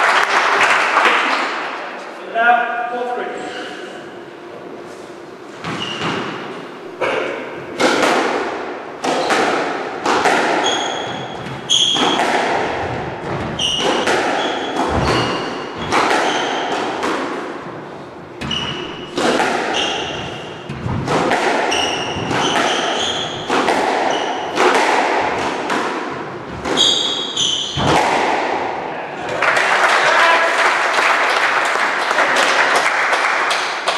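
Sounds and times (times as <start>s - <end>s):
squash ball hits echoing: 5.6s - 29.4s
trainers squeaking on wooden floor: 10.5s - 17.0s, 18.4s - 24.6s, 26.6s - 27.9s.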